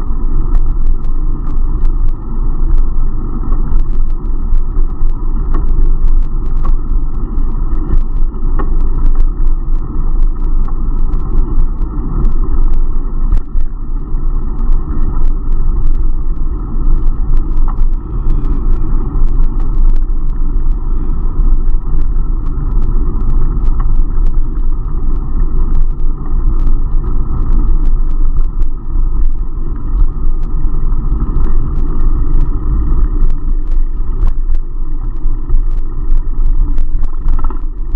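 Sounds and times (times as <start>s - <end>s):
wind buffeting microphone: 0.0s - 37.9s.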